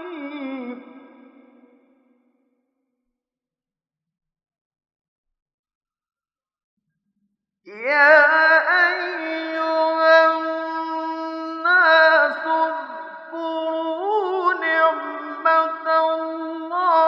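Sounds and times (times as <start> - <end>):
man reciting melodically: 0.0 - 1.8, 7.7 - 17.0.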